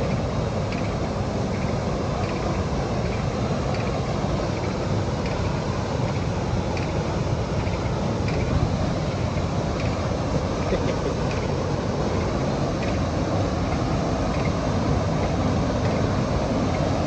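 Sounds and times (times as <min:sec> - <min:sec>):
waterfall roaring into pool: 0:00.0 - 0:17.0.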